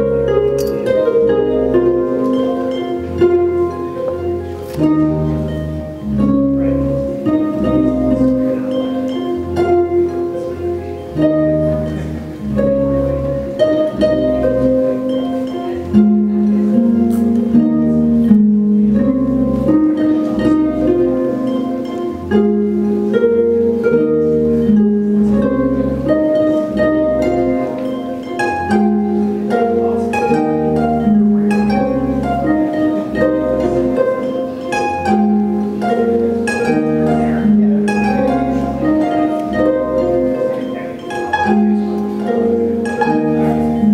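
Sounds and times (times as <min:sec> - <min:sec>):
harp melody with effects: 0:00.0 - 0:43.9
sustained low harp notes: 0:00.0 - 0:43.9.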